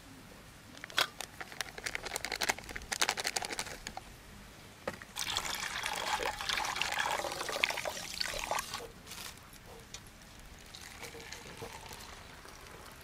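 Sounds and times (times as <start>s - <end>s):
water pouring into metal pot: 5.2s - 8.8s, 10.6s - 13.0s.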